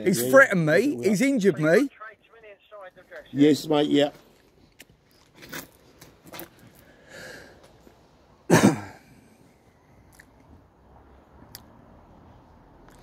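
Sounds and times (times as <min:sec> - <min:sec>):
person coughing: 0:08.5 - 0:09.1.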